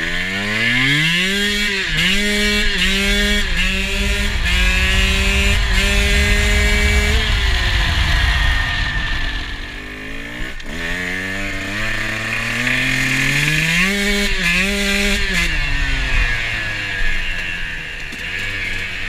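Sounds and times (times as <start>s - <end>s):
dirt bike engine revving: 0.0s - 19.0s
wind noise: 1.9s - 11.1s.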